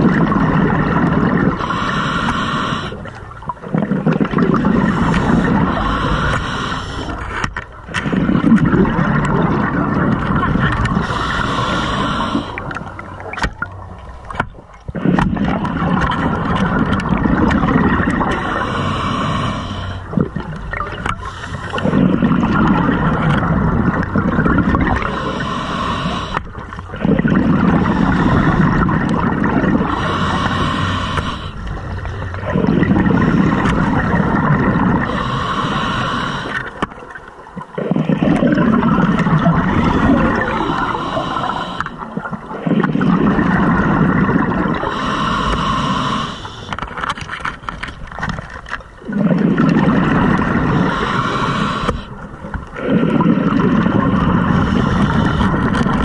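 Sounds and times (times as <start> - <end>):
scuba regulator breathing underwater: 0.0 - 13.3, 14.9 - 37.0, 37.8 - 47.9, 49.1 - 56.0.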